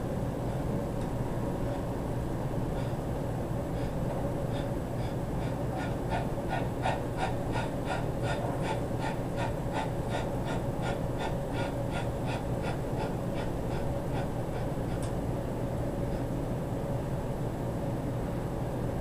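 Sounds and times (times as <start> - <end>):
steady hum: 0.0 - 19.0
man breathing hard: 2.6 - 15.3, 15.9 - 16.4.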